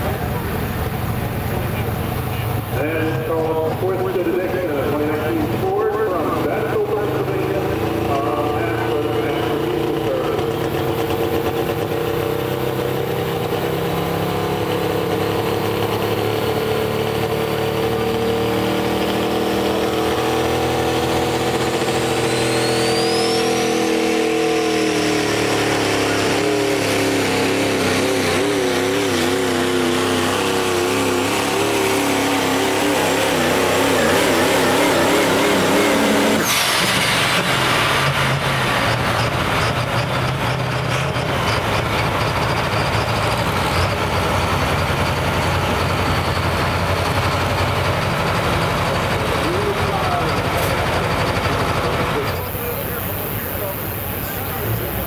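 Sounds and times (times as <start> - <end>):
diesel engine at high revs: 0.0 - 55.0
turbo whine: 0.0 - 55.0.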